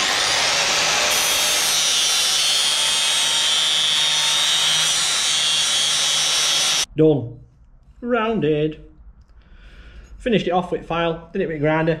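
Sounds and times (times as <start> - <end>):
angle grinder grinding steel: 0.0 - 6.9.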